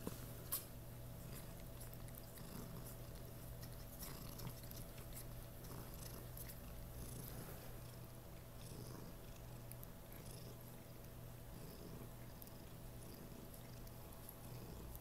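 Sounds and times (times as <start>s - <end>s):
cat purring: 1.1s - 15.0s.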